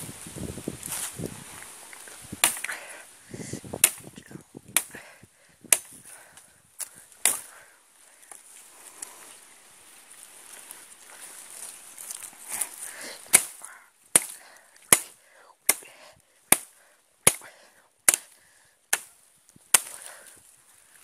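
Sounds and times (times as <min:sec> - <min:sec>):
leaves and twigs rustling: 0:00.0 - 0:21.0
machete chopping brush: 0:02.0 - 0:02.8, 0:03.7 - 0:05.1, 0:05.7 - 0:06.2, 0:06.8 - 0:07.6, 0:12.1 - 0:20.3.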